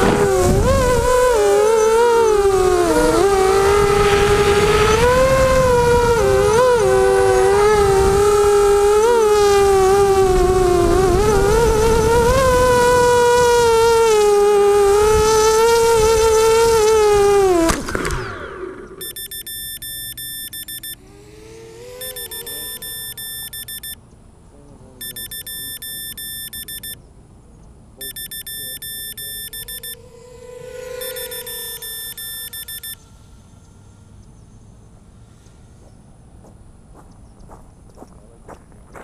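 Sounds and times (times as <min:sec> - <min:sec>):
aircraft hitting the ground: 0:00.0 - 0:01.4
rc aircraft motors whining: 0:00.0 - 0:24.0, 0:24.6 - 0:27.0, 0:28.0 - 0:36.2
rapid electronic beeping: 0:19.0 - 0:21.0, 0:22.0 - 0:24.0, 0:25.0 - 0:27.0, 0:28.0 - 0:30.0, 0:30.7 - 0:33.0.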